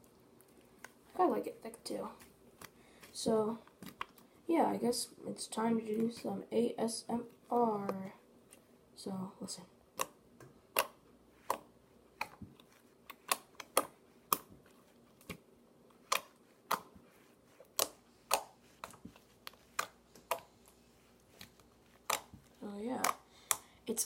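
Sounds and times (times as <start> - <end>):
slime clicking and popping: 10.0 - 12.4, 13.0 - 14.5, 16.0 - 16.9, 17.7 - 20.5, 21.4 - 22.4.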